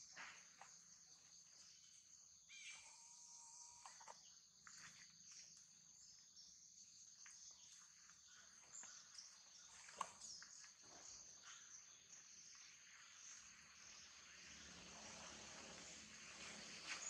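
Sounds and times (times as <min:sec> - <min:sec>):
small clicks: 0:03.7 - 0:04.2.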